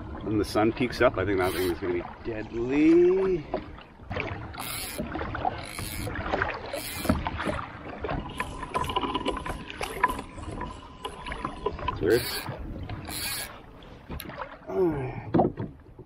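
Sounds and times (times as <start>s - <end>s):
water lapping at a kayak hull: 0.0s - 16.0s
fishing reel clicks and knocks: 1.4s - 1.7s, 4.6s - 5.0s, 5.6s - 7.2s, 12.2s - 13.6s.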